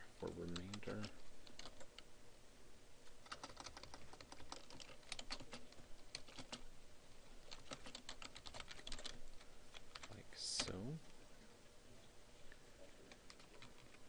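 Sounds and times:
computer keyboard typing: 0:00.4 - 0:02.1, 0:03.2 - 0:06.7, 0:07.4 - 0:10.8, 0:13.1 - 0:14.0.

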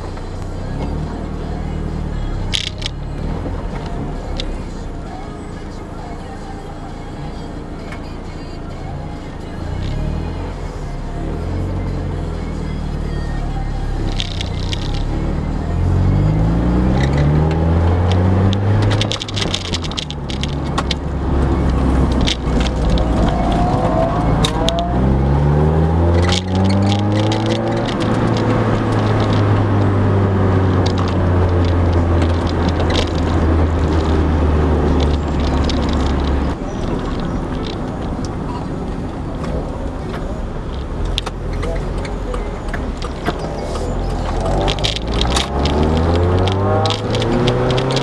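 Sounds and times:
car engine revving: 0:00.0 - 0:48.0
clicks and knocks: 0:26.1 - 0:29.9, 0:30.8 - 0:38.4, 0:39.0 - 0:48.0.

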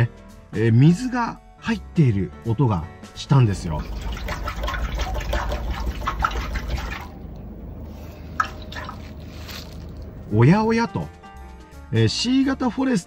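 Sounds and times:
water sloshing inside muffler: 0:03.6 - 0:10.4.

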